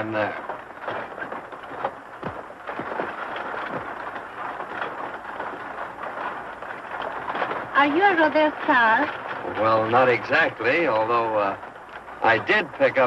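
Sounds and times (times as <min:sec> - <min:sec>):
rumbling rattling noise: 0:00.0 - 0:13.0.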